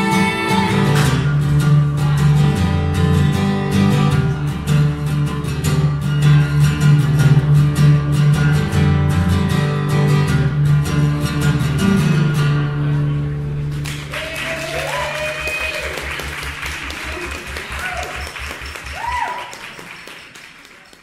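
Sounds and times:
acoustic guitar strumming: 0:00.0 - 0:14.1
people clapping: 0:13.6 - 0:21.0
person cheering: 0:14.1 - 0:16.1, 0:17.0 - 0:19.8.

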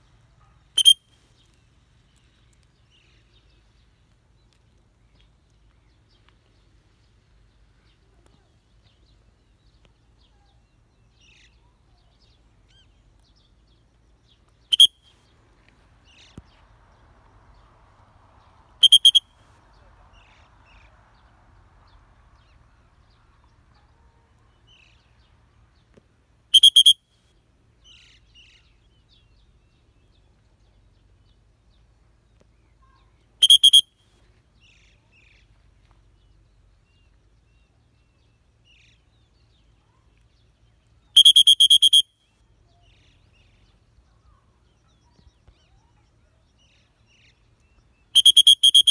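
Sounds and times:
faint bird chirps: 0:00.0 - 0:15.3, 0:18.8 - 0:21.0, 0:26.5 - 0:48.9
shrill whistle blasts: 0:00.8 - 0:01.0, 0:14.7 - 0:15.0, 0:18.8 - 0:19.3, 0:26.6 - 0:27.0, 0:33.4 - 0:33.9, 0:41.2 - 0:42.1, 0:48.2 - 0:48.9.

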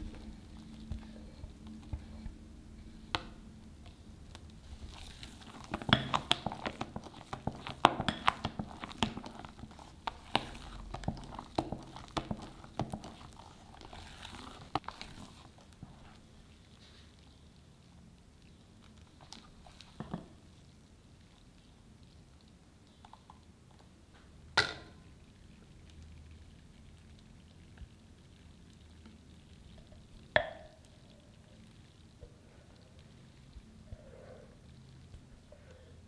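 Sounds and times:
spatula folding batter squelching: 0:00.0 - 0:23.9.

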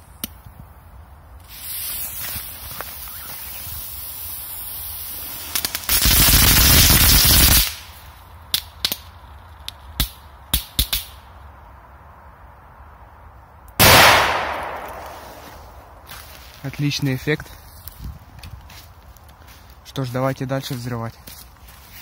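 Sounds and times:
firecracker hiss: 0:01.4 - 0:08.2
firecracker sharp cracks: 0:05.4 - 0:09.1, 0:09.9 - 0:11.2, 0:13.8 - 0:16.0
loud echoing bang: 0:13.8 - 0:15.8.

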